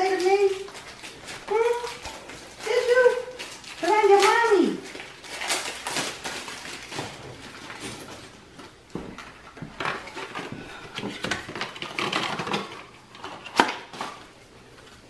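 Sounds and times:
tissue paper rustling: 0.0s - 8.6s.

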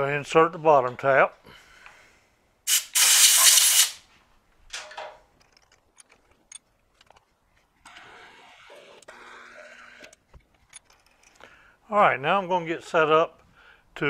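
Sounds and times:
hissing spray: 2.7s - 4.0s.

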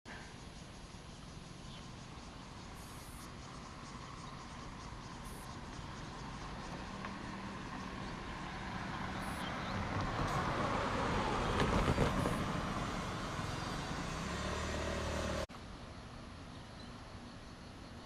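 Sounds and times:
vehicle passing close by: 4.7s - 15.5s.

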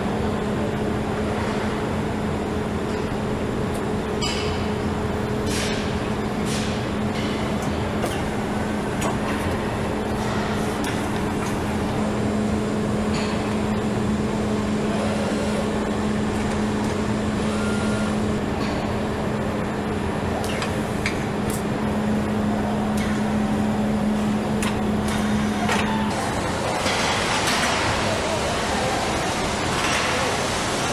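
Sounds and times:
machine hum: 0.0s - 30.9s
machinery clicks and knocks: 5.4s - 12.0s, 24.4s - 28.2s.

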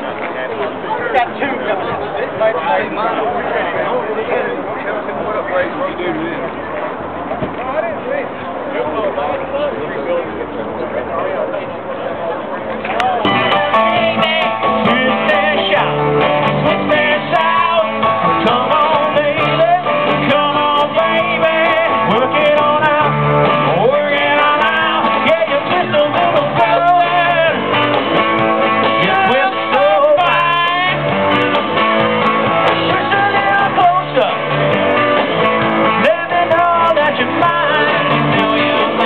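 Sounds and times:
keyboard: 0.0s - 39.0s
electric guitars: 12.8s - 39.0s
person singing: 13.7s - 28.0s, 28.8s - 31.4s, 32.6s - 34.8s, 35.8s - 39.0s.

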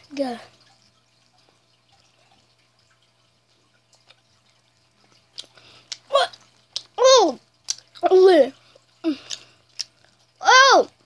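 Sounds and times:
low steady hum: 0.0s - 11.0s
child chewing with mouth clicks: 3.9s - 10.4s.

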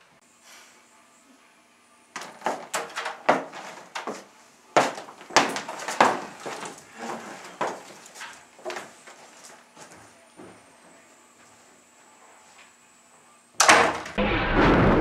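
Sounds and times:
door bumps: 2.2s - 4.2s
footsteps: 2.2s - 13.3s.

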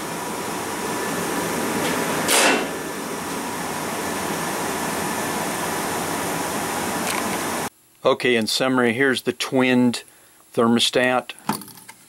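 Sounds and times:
gas furnace burners rushing: 0.0s - 7.7s.

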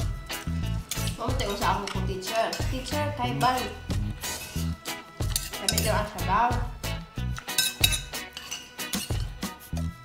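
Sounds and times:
music with steady bass beat: 0.0s - 8.3s.

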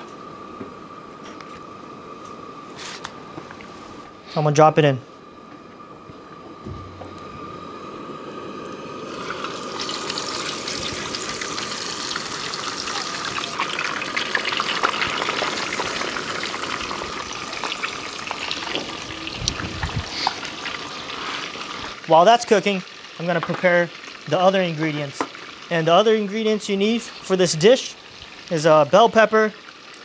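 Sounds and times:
fish sizzling in hot oil: 8.4s - 28.7s, 29.4s - 30.0s.

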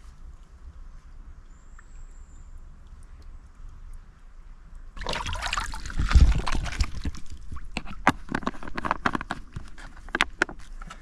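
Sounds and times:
water gurgling and sloshing: 4.9s - 11.0s.

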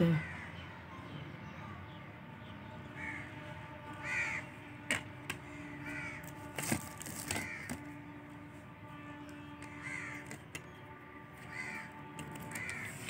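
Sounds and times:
crows cawing: 0.0s - 0.6s, 3.0s - 4.6s, 5.3s - 8.0s, 9.6s - 10.4s, 11.4s - 13.0s
plastic wrapper crackling: 6.2s - 7.9s.

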